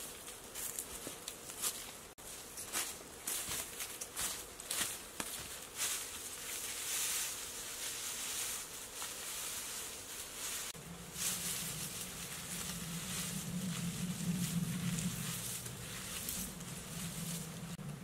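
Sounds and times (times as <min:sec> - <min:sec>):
dry grass thatch rustling: 0:00.0 - 0:18.0
low steady hum: 0:09.0 - 0:18.0.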